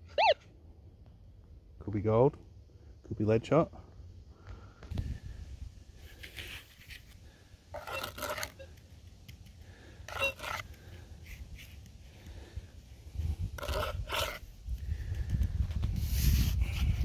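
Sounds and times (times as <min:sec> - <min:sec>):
metal trowel scraping dry soil: 0:06.0 - 0:08.8, 0:09.9 - 0:11.9, 0:13.1 - 0:14.6, 0:15.9 - 0:17.0.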